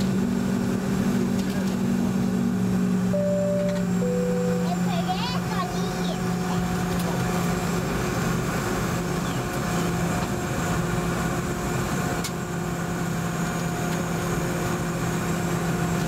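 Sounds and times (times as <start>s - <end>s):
jet engines droning: 0.0s - 15.8s
brief tick: 3.6s - 3.9s.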